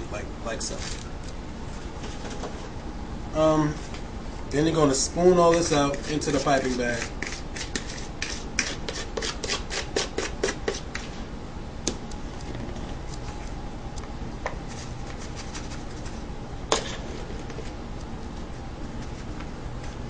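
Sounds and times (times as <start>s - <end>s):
spoon scraping a bowl: 5.6s - 11.2s.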